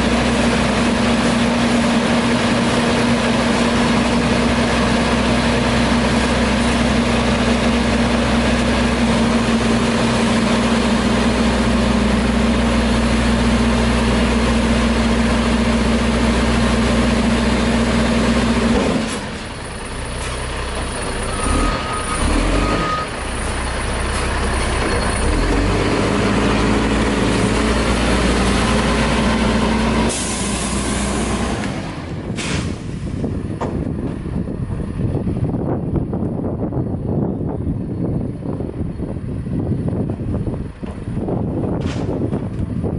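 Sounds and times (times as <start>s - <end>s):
garbage truck diesel engine whining: 0.0s - 42.9s
loud air hiss: 30.1s - 31.2s.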